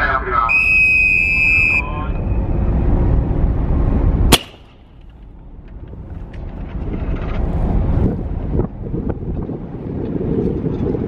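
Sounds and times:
wind buffeting microphone: 2.3s - 11.0s
line-throwing gun crack: 4.3s - 4.8s.

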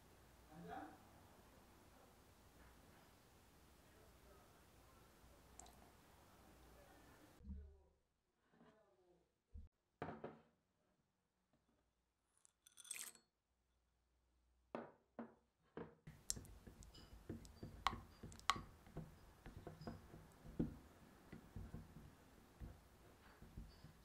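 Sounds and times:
spatula scraping glass cup: 12.7s - 13.2s, 23.0s - 24.0s
soft knocks: 14.8s - 24.0s.

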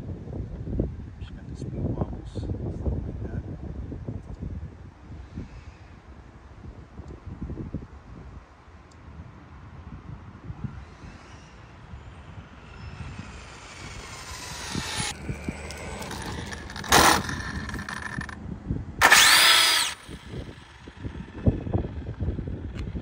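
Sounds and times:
electric motor whining: 11.2s - 18.4s, 19.0s - 23.0s.

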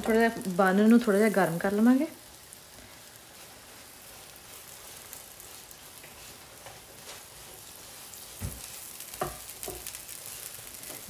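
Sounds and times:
food sizzling in hot fat: 0.0s - 11.0s
soft knocks in pan: 8.4s - 9.9s.

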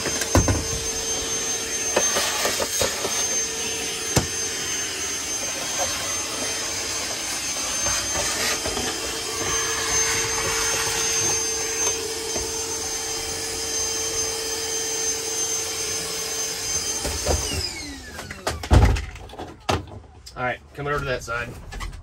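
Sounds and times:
nozzle sucking dirt: 0.0s - 13.5s
shop vac motor whine: 0.0s - 19.8s.

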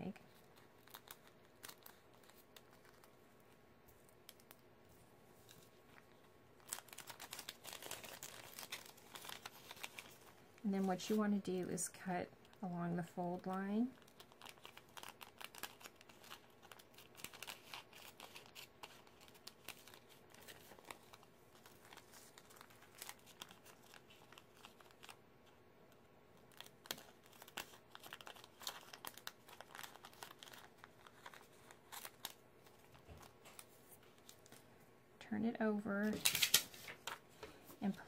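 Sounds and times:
cellophane bag crinkling: 0.1s - 3.2s, 5.4s - 11.2s, 13.4s - 25.2s, 26.4s - 34.6s, 36.1s - 37.3s.

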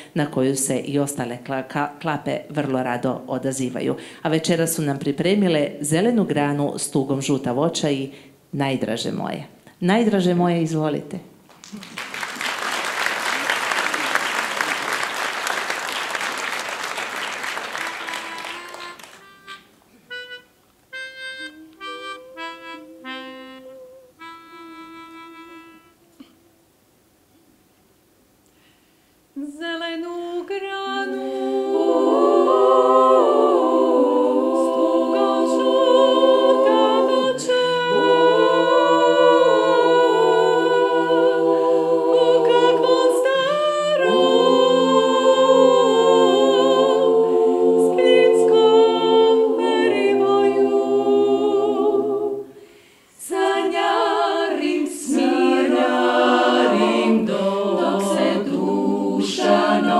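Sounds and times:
women singing a cappella harmony: 21.4s - 26.2s, 29.4s - 59.9s.

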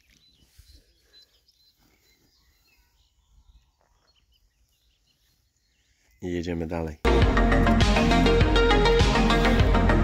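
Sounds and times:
faint bird chirps: 0.0s - 6.6s.

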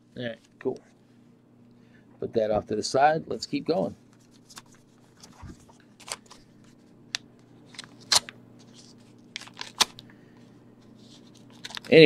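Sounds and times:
paper envelopes rustling: 4.1s - 7.0s, 7.6s - 12.0s
scissors cutting paper envelope: 7.7s - 10.0s, 11.2s - 12.0s.

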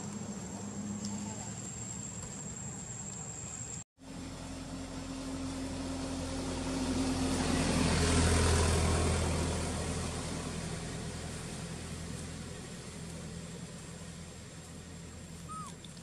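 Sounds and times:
vehicle engine passing by: 0.0s - 16.0s.

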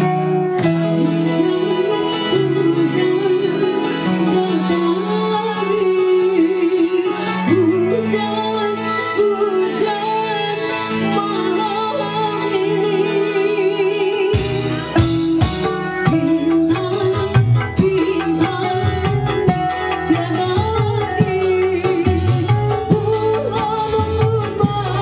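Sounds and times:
keyboard melody: 0.0s - 25.0s
woman singing into microphone: 0.0s - 25.0s
bass line: 14.4s - 25.0s.

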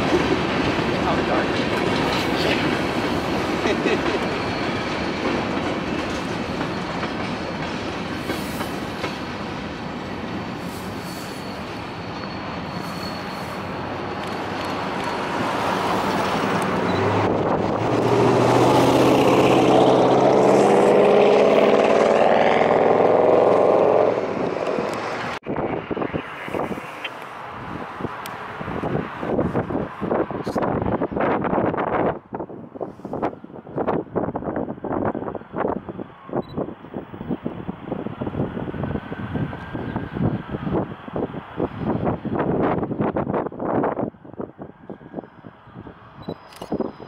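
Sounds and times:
freight train rolling on rails: 0.0s - 47.0s
wind noise: 10.5s - 47.0s.

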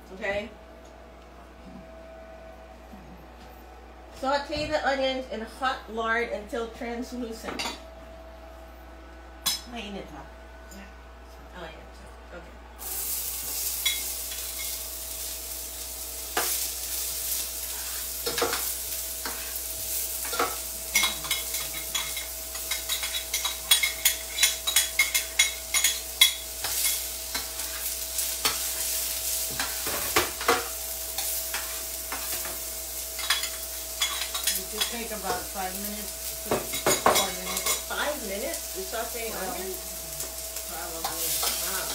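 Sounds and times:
onions sizzling in a pan: 12.8s - 41.9s.

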